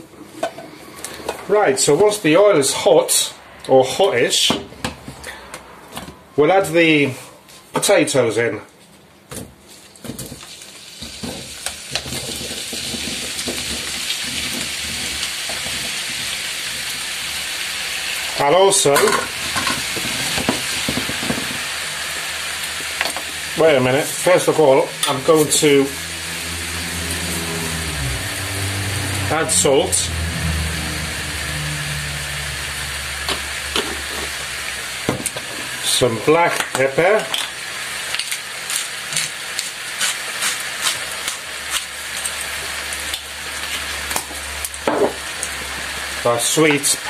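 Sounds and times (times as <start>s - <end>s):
potatoes sizzling in hot oil: 10.2s - 47.0s.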